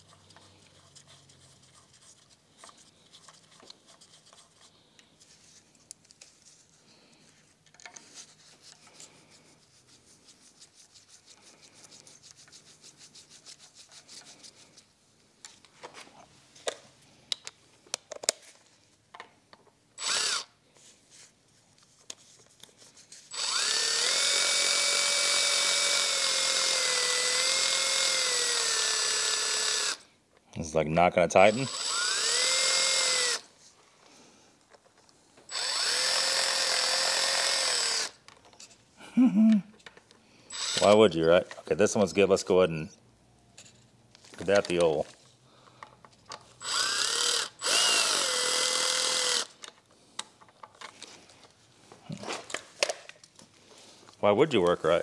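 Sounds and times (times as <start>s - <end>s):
cordless ratchet motor whining: 20.0s - 20.5s, 23.3s - 30.0s, 31.5s - 33.5s, 35.5s - 38.2s, 40.5s - 41.0s, 46.6s - 49.6s
clicks and rubbing on metal parts: 43.6s - 46.6s.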